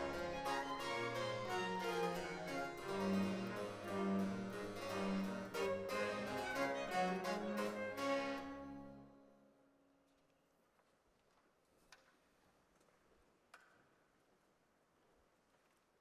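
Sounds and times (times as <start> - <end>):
harpsichord plucking: 0.0 - 8.8
baroque string ensemble: 0.0 - 9.2.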